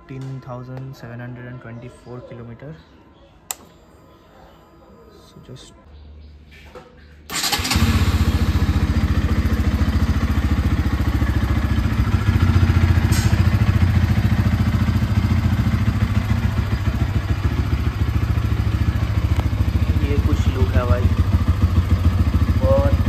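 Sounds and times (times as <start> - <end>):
motorcycle engine starting and idling: 6.5 - 23.0.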